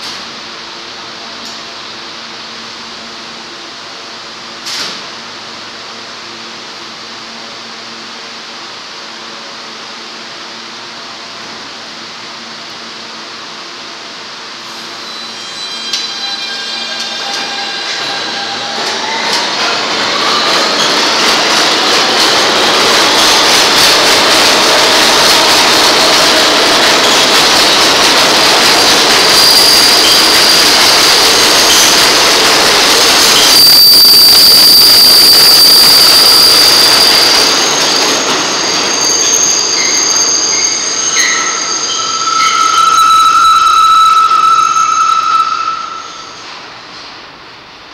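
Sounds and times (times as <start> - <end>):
high wheel squeal: 14.7 - 21.4, 29.2 - 32.0, 33.0 - 46.6.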